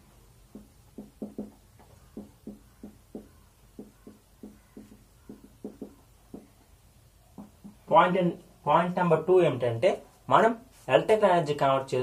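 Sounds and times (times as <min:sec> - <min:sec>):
marker pen writing on whiteboard: 0:00.5 - 0:07.9.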